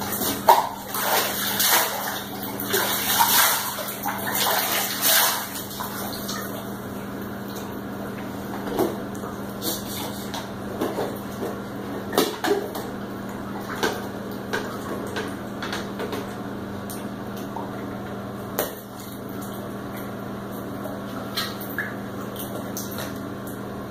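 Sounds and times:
bathwater splashing: 0.0s - 17.8s.

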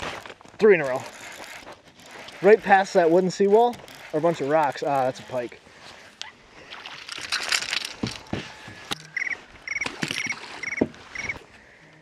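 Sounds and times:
fish splashing: 6.0s - 11.4s
short trilled chirps: 9.0s - 11.4s.

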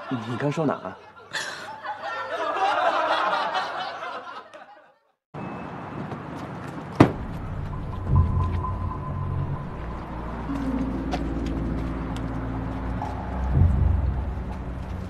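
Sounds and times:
laughter: 0.0s - 5.2s
outdoor background noise: 5.4s - 15.0s
low rumble: 7.2s - 15.0s.

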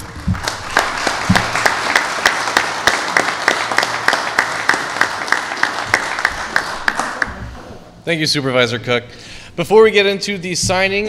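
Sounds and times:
small group applauding: 0.0s - 7.6s.

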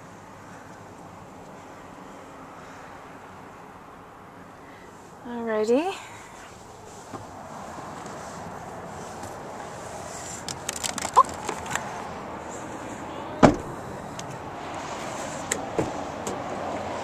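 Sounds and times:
clicks and handling noise: 10.3s - 11.9s
van door shutting thud: 13.4s - 13.8s.

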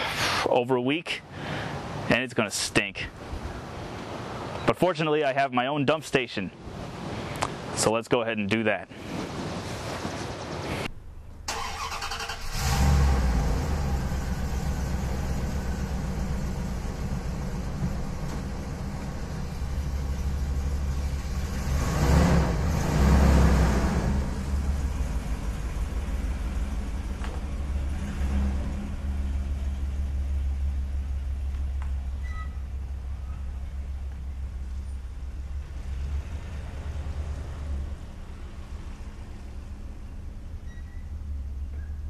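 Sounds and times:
van engine starting and running: 10.8s - 42.0s.

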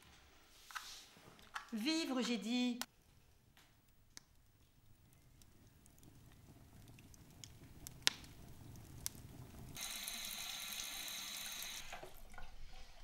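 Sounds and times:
wood fire popping: 2.8s - 12.7s.

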